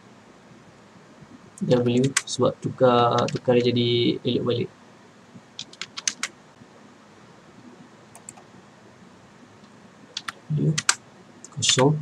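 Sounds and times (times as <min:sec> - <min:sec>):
faint room hiss: 0:00.0 - 0:12.0
keyboard keystrokes: 0:03.1 - 0:03.7, 0:05.6 - 0:06.3, 0:08.1 - 0:08.4, 0:10.2 - 0:11.0.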